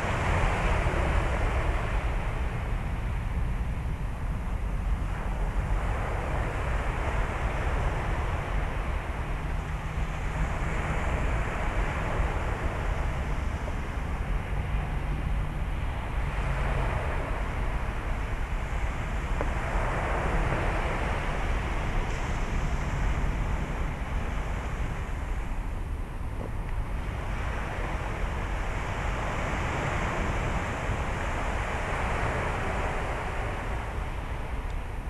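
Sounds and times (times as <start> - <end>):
surf washing on beach: 0.0 - 35.0
wind noise on microphone: 0.0 - 35.0.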